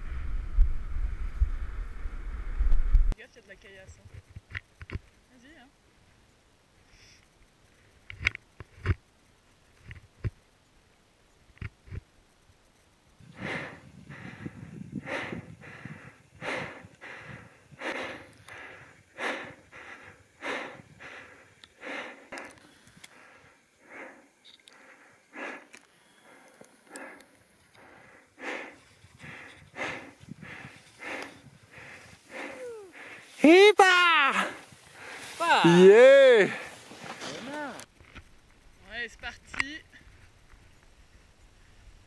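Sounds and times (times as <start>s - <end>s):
low rumble: 0.0s - 3.2s
heavy breathing: 13.2s - 33.6s, 34.3s - 37.6s.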